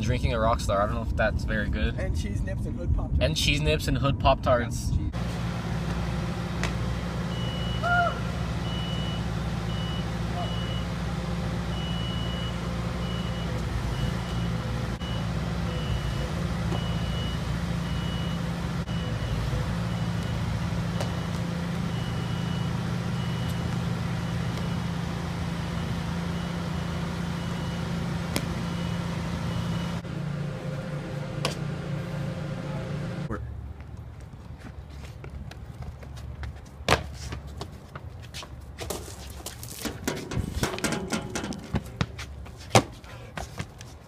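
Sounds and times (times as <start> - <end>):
low engine hum: 4.8 - 38.8
reversing alarm beeping: 7.2 - 30.0.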